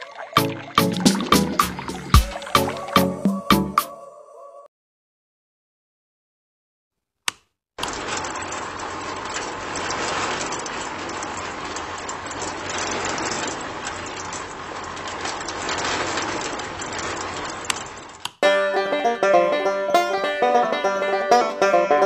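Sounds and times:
concrete mixer churning and rattling: 0:07.8 - 0:18.3.

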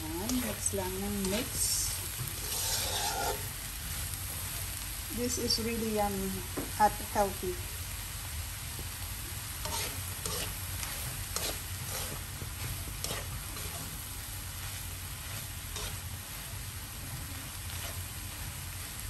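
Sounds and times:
frying sizzle: 0:00.0 - 0:19.0
spatula scraping a wok: 0:00.2 - 0:04.8, 0:09.5 - 0:19.0.

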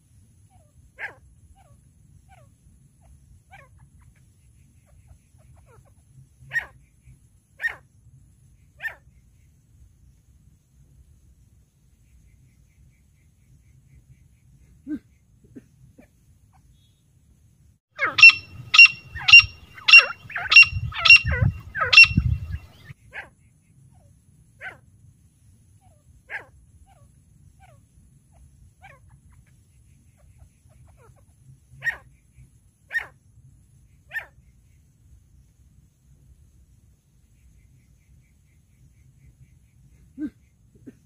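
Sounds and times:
francolin ringing calls: 0:18.0 - 0:22.9.

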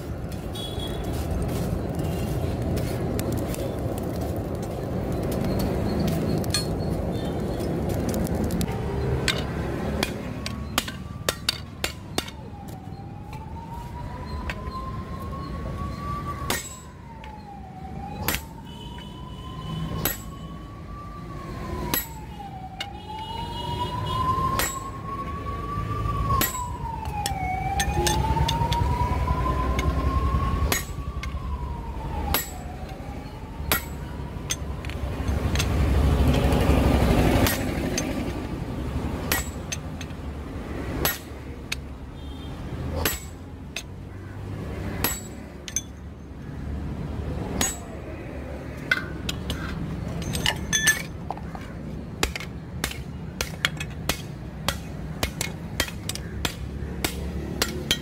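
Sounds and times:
siren wailing: 0:08.6 - 0:39.5
hammer striking steel on anvil: 0:16.5 - 0:16.9, 0:20.0 - 0:20.3, 0:24.6 - 0:24.9, 0:26.4 - 0:26.7, 0:39.3 - 0:39.8, 0:43.0 - 0:43.9, 0:45.0 - 0:45.9, 0:47.6 - 0:48.0.

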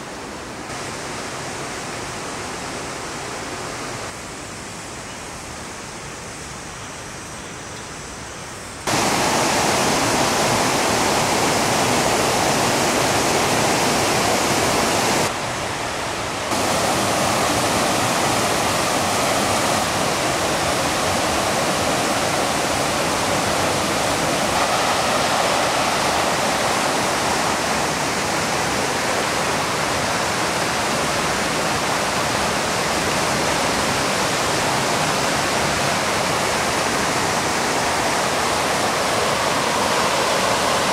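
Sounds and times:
stream pouring over waterfall: 0:08.9 - 0:40.9.

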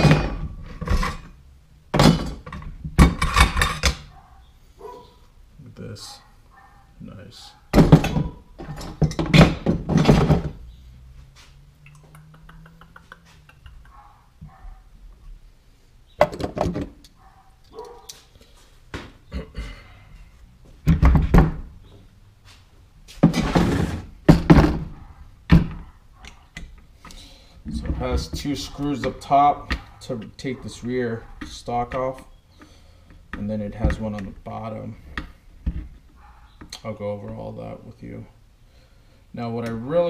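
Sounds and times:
thunks on wooden workbench: 0:07.7 - 0:10.6, 0:20.8 - 0:21.6, 0:23.2 - 0:25.9.

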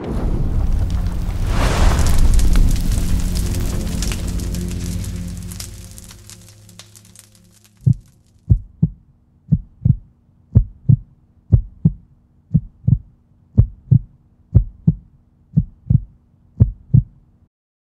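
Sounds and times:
heartbeat thumps: 0:07.8 - 0:17.2.

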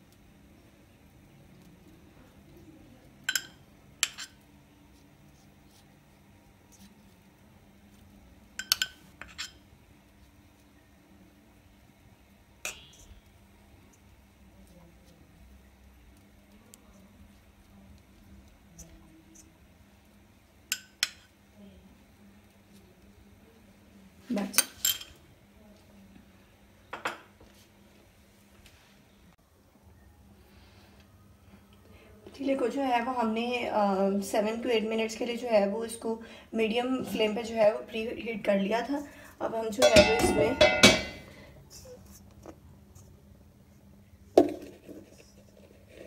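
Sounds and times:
metal spoon clinking on steel: 0:03.2 - 0:04.4, 0:08.6 - 0:09.6, 0:24.6 - 0:25.2, 0:39.8 - 0:41.3.

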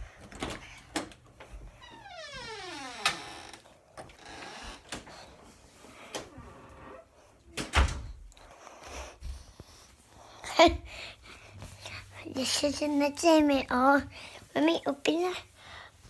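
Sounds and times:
squeaky creak falling in pitch: 0:01.9 - 0:03.6.

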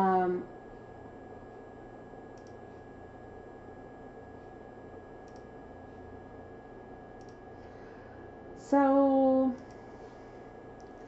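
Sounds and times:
faint high whine: 0:00.0 - 0:11.0
faint mouse clicks: 0:02.4 - 0:02.6, 0:05.2 - 0:05.5, 0:07.2 - 0:07.4, 0:09.6 - 0:09.9, 0:10.8 - 0:11.0.

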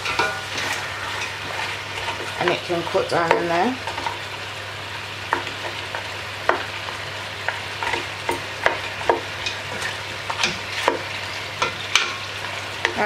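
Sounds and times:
spoon knocking and scraping pot: 0:00.0 - 0:04.1, 0:07.8 - 0:13.0
meat sizzling in a pot: 0:00.0 - 0:13.0.

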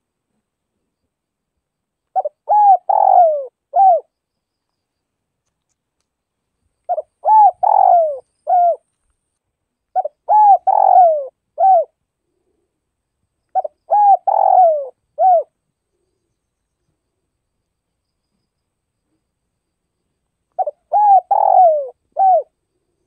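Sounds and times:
dove cooing: 0:02.1 - 0:04.1, 0:06.9 - 0:08.9, 0:10.0 - 0:12.0, 0:13.6 - 0:15.5, 0:20.6 - 0:22.6.

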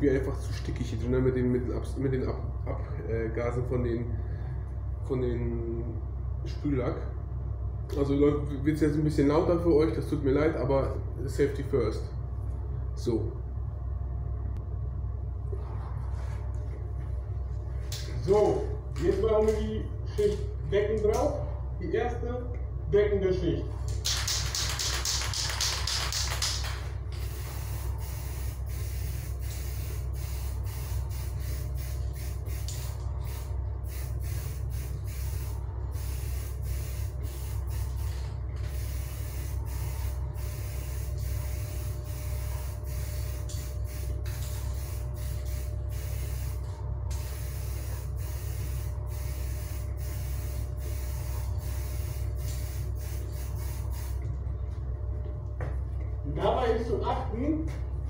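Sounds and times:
fume extraction fan hum: 0:00.0 - 0:58.0
spray paint can hissing: 0:24.1 - 0:54.2.

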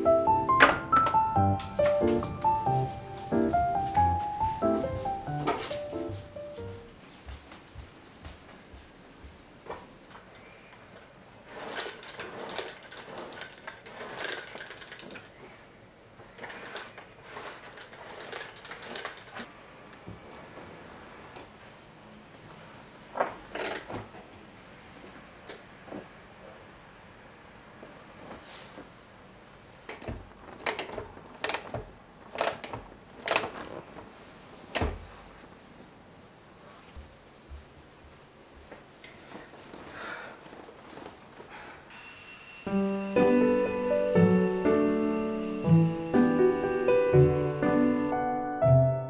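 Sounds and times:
lint roller crackling over fabric: 0:11.3 - 0:15.6, 0:16.2 - 0:19.5, 0:33.1 - 0:41.6.

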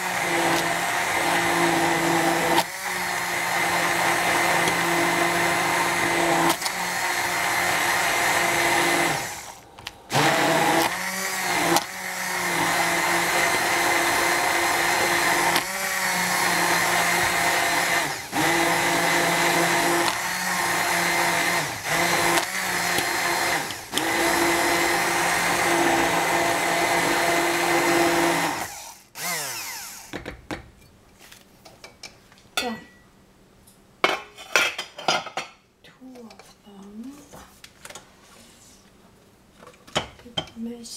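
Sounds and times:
immersion blender motor humming: 0:00.0 - 0:30.3.

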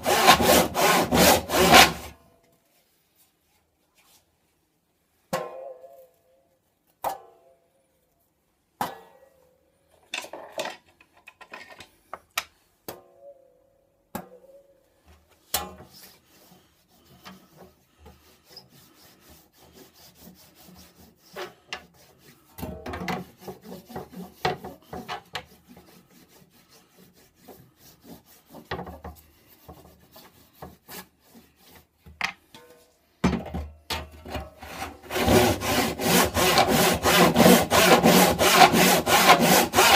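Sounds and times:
scraping and rubbing a saw blade: 0:00.0 - 0:02.2, 0:15.5 - 0:33.0, 0:34.3 - 0:39.9.

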